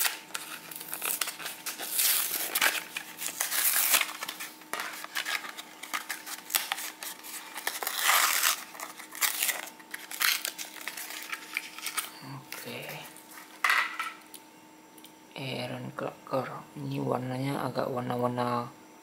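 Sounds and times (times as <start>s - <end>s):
plastic blister pack crinkling: 0.0s - 14.0s.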